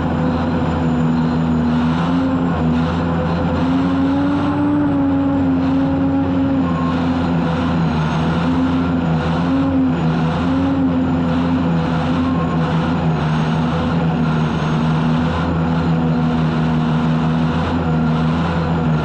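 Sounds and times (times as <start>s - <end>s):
continuous rushing noise: 0.0s - 19.0s
turbine engine droning: 0.0s - 19.0s.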